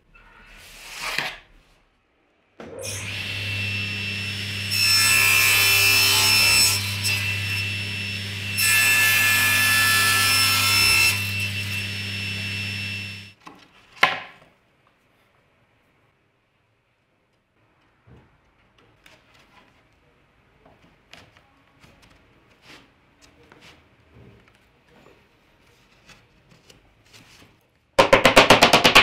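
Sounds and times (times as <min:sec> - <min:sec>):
saw cutting through plank: 0:02.8 - 0:13.3
table saw motor hum: 0:02.8 - 0:13.3.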